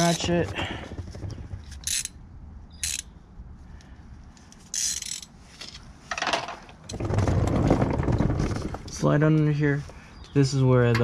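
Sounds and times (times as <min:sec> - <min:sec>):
socket ratchet clicking: 0:01.7 - 0:02.2, 0:02.8 - 0:03.1, 0:04.7 - 0:05.3.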